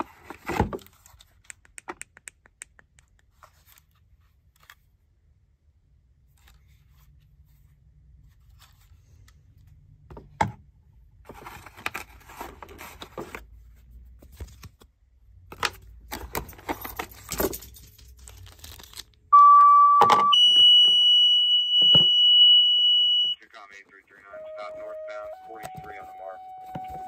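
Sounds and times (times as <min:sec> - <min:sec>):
cardboard packaging rustling: 0:11.3 - 0:13.5, 0:15.6 - 0:19.2
two-tone pager alert: 0:19.3 - 0:23.4, 0:24.3 - 0:27.0.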